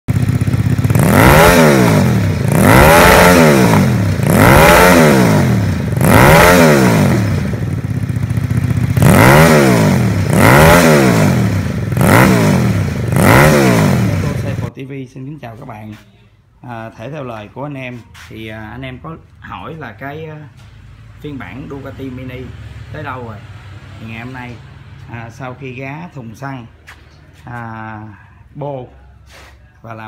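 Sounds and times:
motorcycle engine revving: 0:00.0 - 0:14.7, 0:19.6 - 0:28.2.

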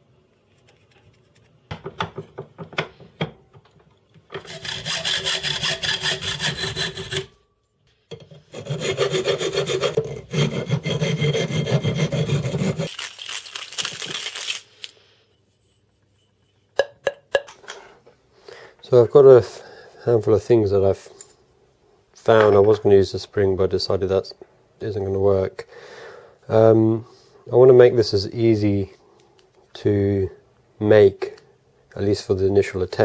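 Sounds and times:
metal pipe being filed: 0:04.3 - 0:07.4, 0:08.2 - 0:12.9.

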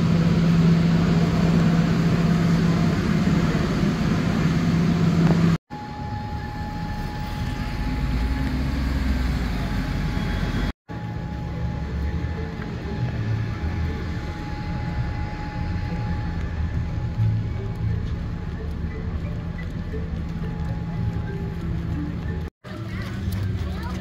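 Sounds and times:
low hum: 0:00.0 - 0:24.0
vehicle running noise: 0:00.0 - 0:24.0.

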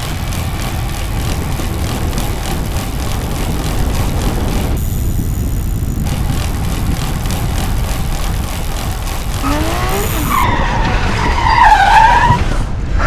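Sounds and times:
bicycle rolling low rumble: 0:00.0 - 0:11.4
wind rushing over microphone: 0:00.6 - 0:10.8.

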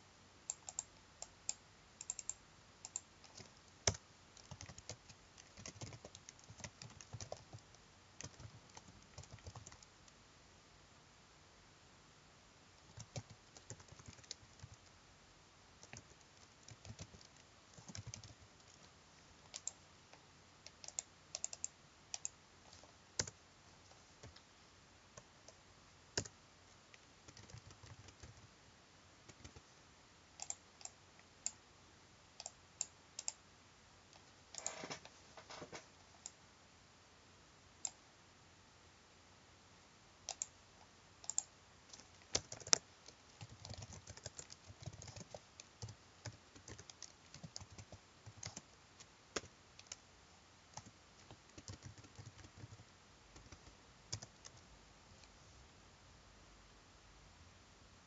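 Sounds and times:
keyboard keys clicking: 0:02.0 - 0:09.9, 0:12.9 - 0:14.8, 0:15.8 - 0:18.8, 0:20.7 - 0:22.3, 0:27.3 - 0:28.4, 0:41.2 - 0:42.8, 0:43.4 - 0:48.6, 0:50.8 - 0:52.8.

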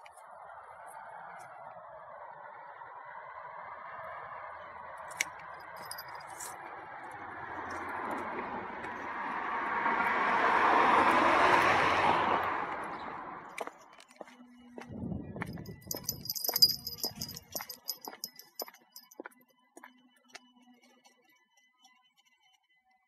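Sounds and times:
car passing by: 0:07.1 - 0:13.6.

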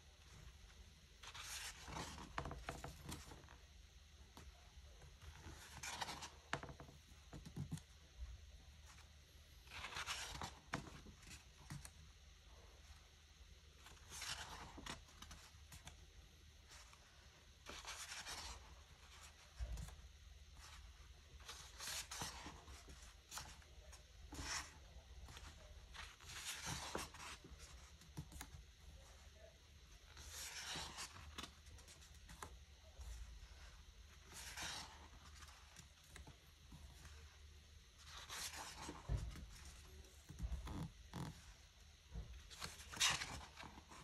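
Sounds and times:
paper pages turning: 0:01.2 - 0:03.6, 0:05.2 - 0:06.8, 0:09.6 - 0:12.0, 0:13.8 - 0:16.0, 0:17.6 - 0:20.0, 0:20.6 - 0:37.4, 0:38.0 - 0:40.7.

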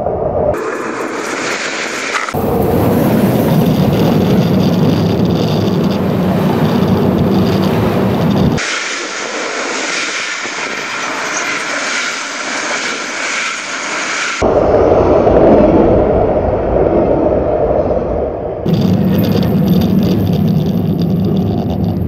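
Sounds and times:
train wheels rumbling on rails: 0:02.3 - 0:08.6, 0:18.7 - 0:22.0.

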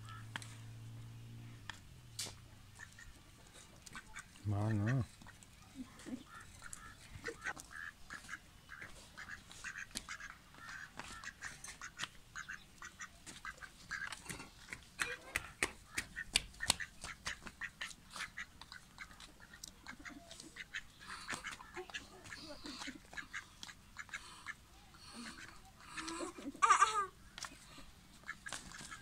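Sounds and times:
duck quacking: 0:02.8 - 0:03.2, 0:03.9 - 0:05.4, 0:06.2 - 0:14.3, 0:15.9 - 0:26.8, 0:28.2 - 0:29.0
sharp clicks and taps: 0:14.0 - 0:17.6.

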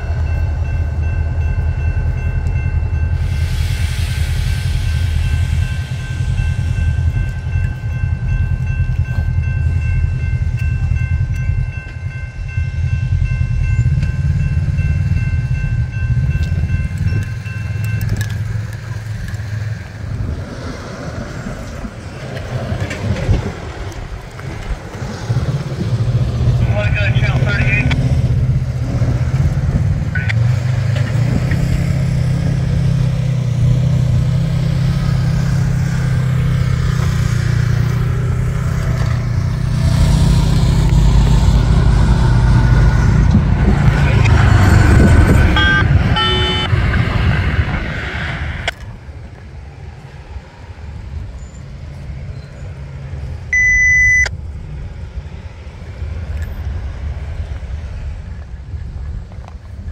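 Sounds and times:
high tones: 0:00.0 - 0:19.0, 0:44.0 - 0:46.7, 0:53.5 - 0:54.3
vehicle engines humming: 0:00.0 - 0:59.9
short beep: 0:45.5 - 0:46.7, 0:53.5 - 0:54.3.

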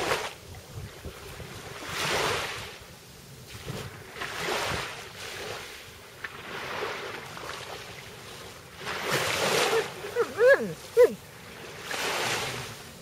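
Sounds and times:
wind on microphone: 0:00.0 - 0:02.8
small waves washing ashore: 0:00.0 - 0:13.0.

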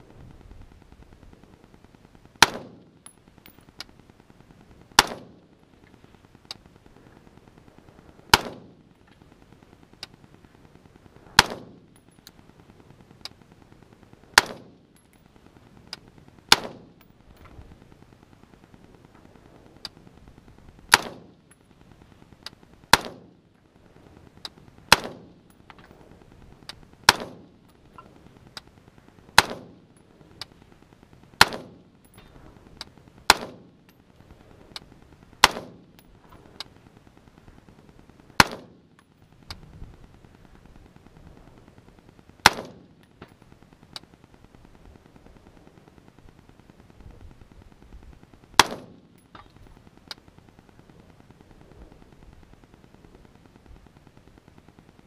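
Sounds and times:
rifle shots with echo: 0:02.4 - 0:03.6, 0:04.9 - 0:05.6, 0:08.3 - 0:09.0, 0:11.3 - 0:12.1, 0:14.4 - 0:15.0, 0:16.5 - 0:17.2, 0:20.9 - 0:21.5, 0:22.9 - 0:23.4, 0:24.9 - 0:25.4, 0:27.1 - 0:27.6, 0:29.4 - 0:29.9, 0:31.4 - 0:32.0, 0:33.3 - 0:33.8, 0:35.4 - 0:36.0, 0:38.4 - 0:38.9, 0:42.4 - 0:43.0, 0:48.6 - 0:49.4.

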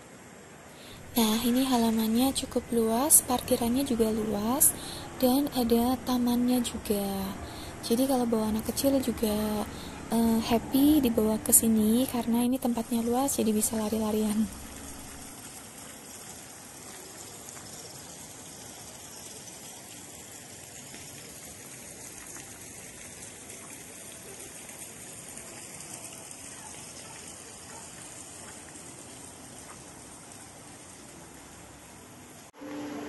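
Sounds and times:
waterfall splashing into pond: 0:12.8 - 0:33.0.

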